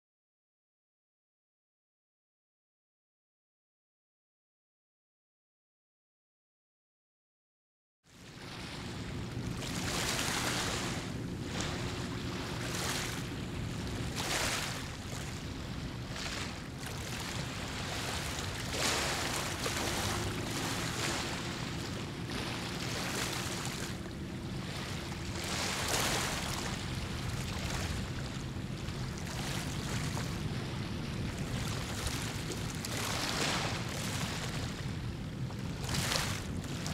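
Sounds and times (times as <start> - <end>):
faint hum: 8.2 - 36.9
low rumble: 8.4 - 33.3.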